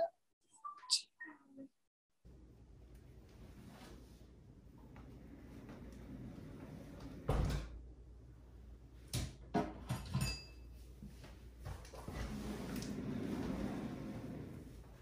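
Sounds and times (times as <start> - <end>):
office chair casters rolling on wood: 12.0 - 15.0.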